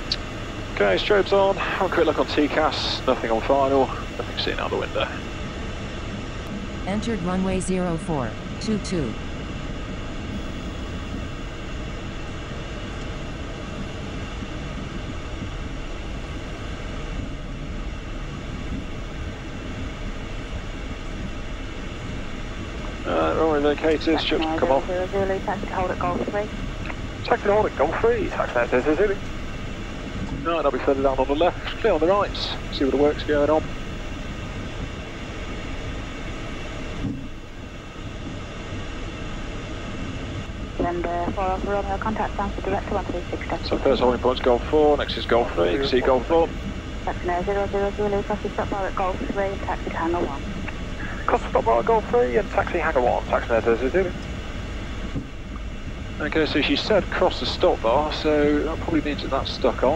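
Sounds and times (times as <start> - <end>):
jet engines idling: 0.0 - 59.9.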